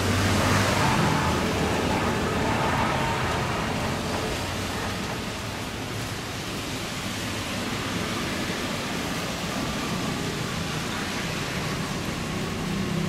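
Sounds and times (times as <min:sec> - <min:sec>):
jet engines roaring: 0:00.0 - 0:07.0.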